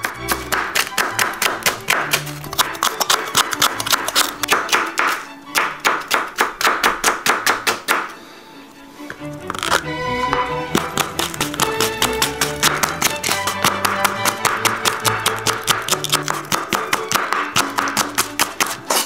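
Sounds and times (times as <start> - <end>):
guitar music: 0.0 - 4.6, 9.1 - 19.0
knife chopping on wooden board: 0.0 - 8.1, 9.5 - 19.0.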